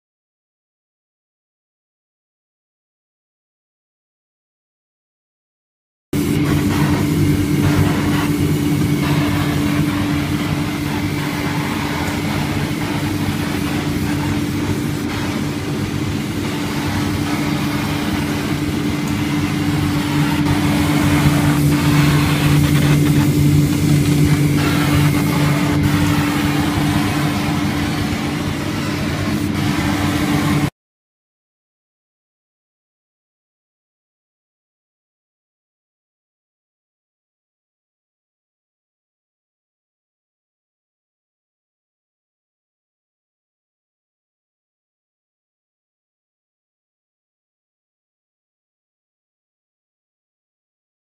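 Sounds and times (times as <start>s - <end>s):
hiss of moving air: 6.2s - 30.7s
laser engraving machine hum: 6.2s - 30.7s.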